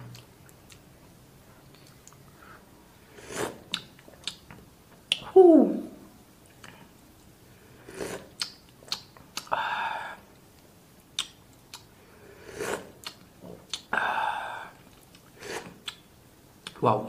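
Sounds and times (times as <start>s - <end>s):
lip smacks: 3.7s - 5.3s, 8.4s - 9.6s, 11.2s - 11.9s, 13.0s - 13.9s, 15.0s - 16.8s
man slurping broth: 12.4s - 12.9s.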